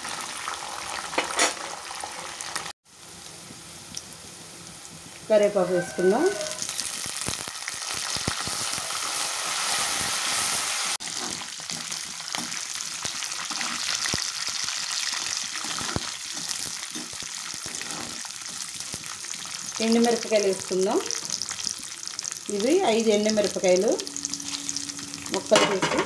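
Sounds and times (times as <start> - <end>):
food sizzling in hot oil: 0.0 - 26.0
spatula clicking and scraping pan: 15.1 - 18.6.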